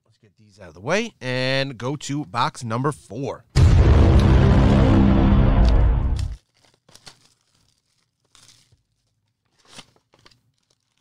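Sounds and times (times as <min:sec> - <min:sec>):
booming music sting: 0:03.6 - 0:06.4
packaging crinkling and tearing: 0:06.2 - 0:11.0.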